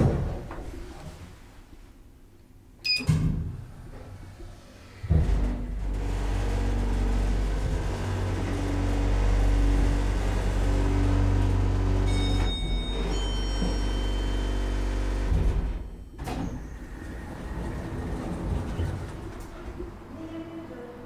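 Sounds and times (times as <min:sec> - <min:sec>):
hydraulic unit humming: 0:05.0 - 0:20.2
elevator car thump: 0:15.1 - 0:19.8.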